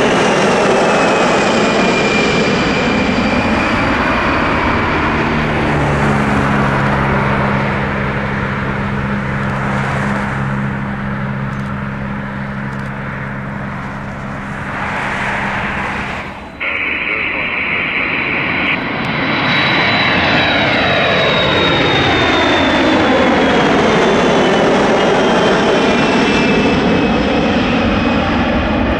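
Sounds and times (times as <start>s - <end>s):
high jet fan whine: 0.0s - 28.9s
jet engines roaring: 0.0s - 28.9s
steady low hum: 3.9s - 19.4s.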